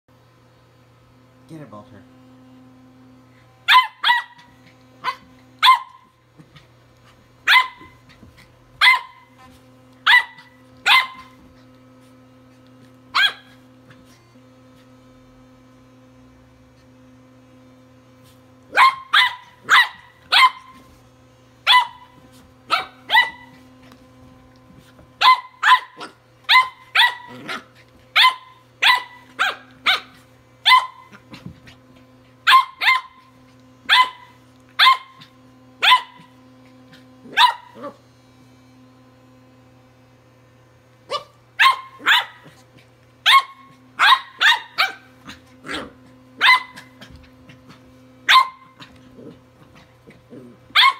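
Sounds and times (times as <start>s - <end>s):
puppy barking: 3.7s - 6.1s, 7.4s - 8.0s, 8.8s - 9.4s, 10.0s - 11.4s, 13.1s - 13.6s, 18.7s - 20.9s, 21.6s - 23.6s, 25.2s - 31.2s, 32.4s - 38.0s, 41.1s - 42.6s, 43.2s - 47.2s, 48.2s - 49.0s
electric toothbrush buzzing: 7.5s - 39.9s.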